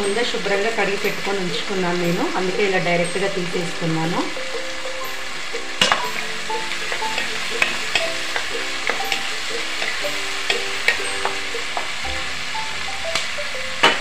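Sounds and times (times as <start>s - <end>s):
vegetables sizzling in oil: 0.0s - 14.0s
spoon scraping a pan: 5.7s - 12.0s.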